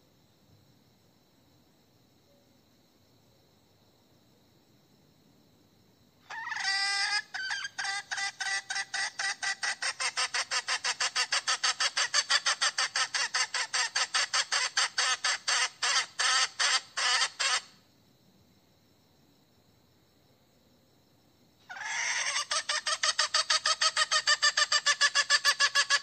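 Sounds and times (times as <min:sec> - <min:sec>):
hen calling: 0:06.3 - 0:17.7, 0:21.7 - 0:26.0.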